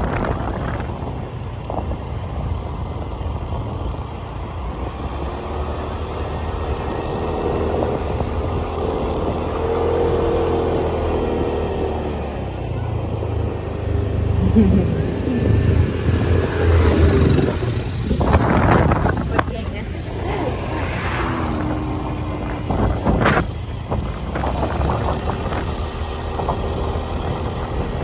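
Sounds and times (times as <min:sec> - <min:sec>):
small motorbike engine: 0:00.0 - 0:28.0
wind and road rush: 0:00.0 - 0:28.0.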